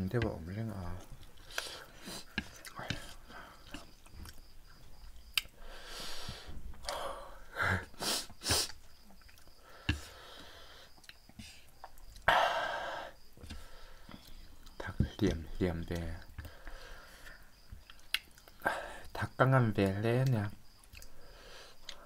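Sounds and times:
slurping and chewing noodles: 0.8 - 7.0, 7.8 - 12.3
sniffs through the nose: 7.9 - 8.8.

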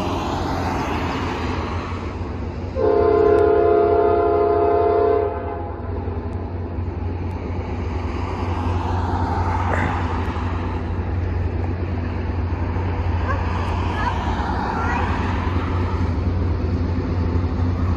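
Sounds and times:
diesel locomotives rumbling: 0.0 - 17.9
locomotive air horn chord: 2.8 - 5.9.

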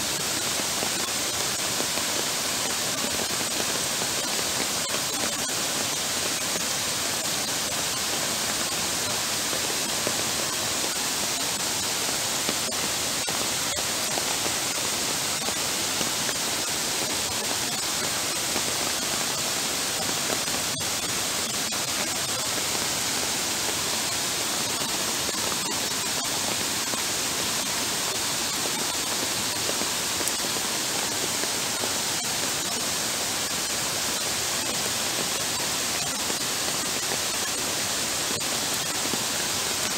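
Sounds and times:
heavy rain on floodwater: 0.0 - 39.9.

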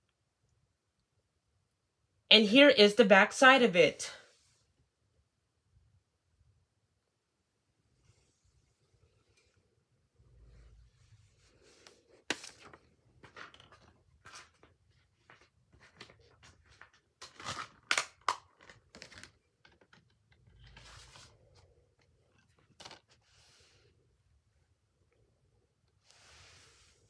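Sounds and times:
paper and plastic case handling: 11.6 - 23.3.

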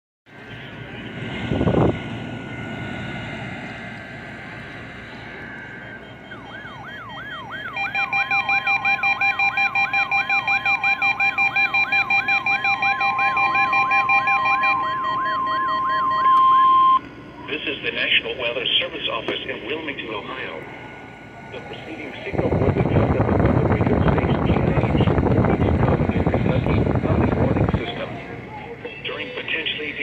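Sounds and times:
steady warning alarm tone: 5.1 - 17.1
siren-like alert sweeping down: 5.2 - 17.0
beeping alert: 7.8 - 17.0.

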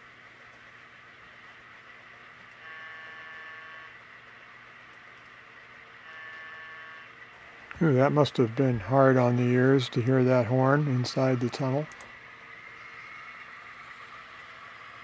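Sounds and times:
faint steady hum: 0.0 - 15.0
model train horn blasts: 2.6 - 4.0, 6.0 - 7.1.

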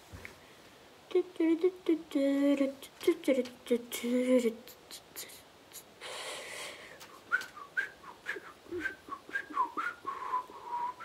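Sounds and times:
person whistling a tune: 7.3 - 11.0.

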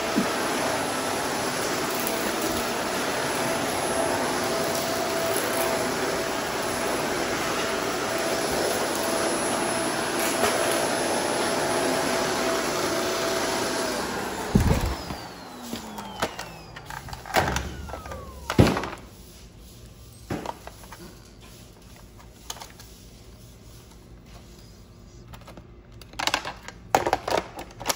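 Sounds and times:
upright vacuum running: 0.0 - 19.6.

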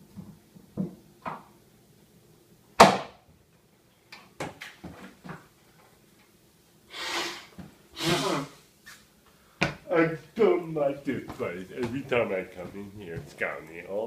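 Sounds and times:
man blowing his nose: 6.9 - 8.7.

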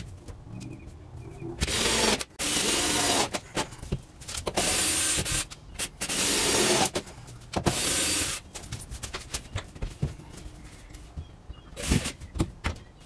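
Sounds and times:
cordless drill driving screws: 1.6 - 3.4.

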